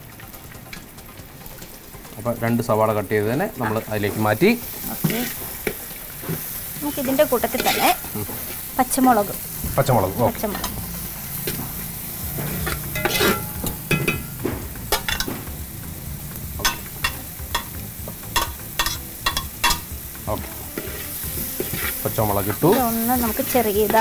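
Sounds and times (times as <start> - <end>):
onions sizzling in oil: 0.0 - 24.0
utensil scraping a pan: 3.6 - 8.7, 9.6 - 15.3, 18.4 - 24.0.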